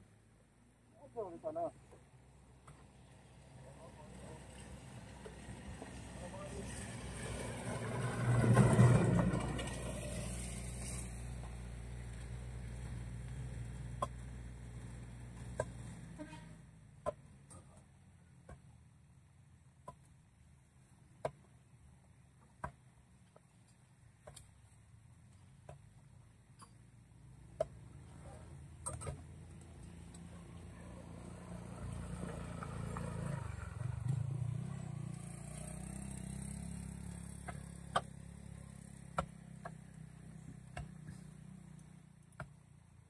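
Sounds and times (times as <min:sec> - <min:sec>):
vehicle engine rumble passing: 0:03.2 - 0:16.6, 0:29.3 - 0:42.0.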